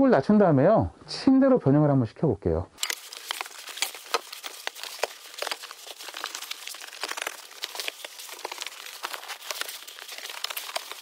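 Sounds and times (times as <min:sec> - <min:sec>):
fabric rustling: 0:02.8 - 0:11.0.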